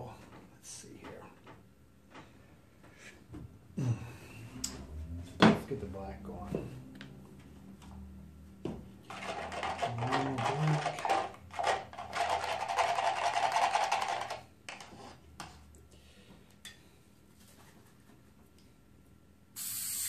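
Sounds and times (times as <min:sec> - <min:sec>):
paint mixing scraping rattle: 0:09.0 - 0:15.7.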